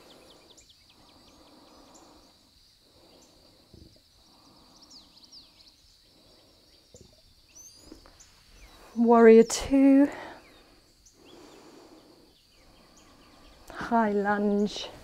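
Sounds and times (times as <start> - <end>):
person breathing softly: 0.0 - 6.9, 10.0 - 13.9
faint bird chirps: 0.0 - 15.0.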